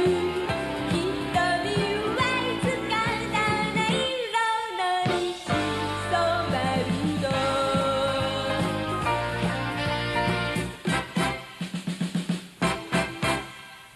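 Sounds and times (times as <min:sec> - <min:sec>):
band backing: 0:00.0 - 0:04.3, 0:04.9 - 0:13.9
woman singing pop song: 0:00.0 - 0:09.1.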